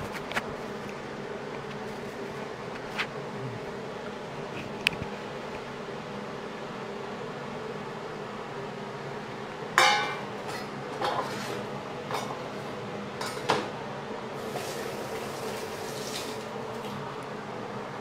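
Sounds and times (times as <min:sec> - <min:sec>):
steady low hum: 0:00.0 - 0:18.0
dishes clinking on counter: 0:09.8 - 0:12.4, 0:13.2 - 0:13.7.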